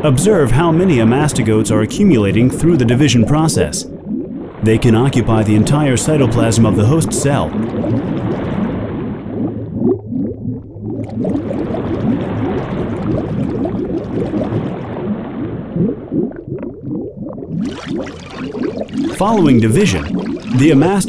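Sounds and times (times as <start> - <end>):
bubbling gurgling liquid: 0.1 - 21.0.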